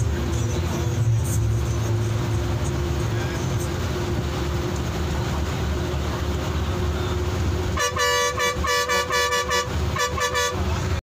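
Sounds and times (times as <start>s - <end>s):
bus engine and road rumble: 0.0s - 11.0s
bus horn short blasts: 7.7s - 11.0s.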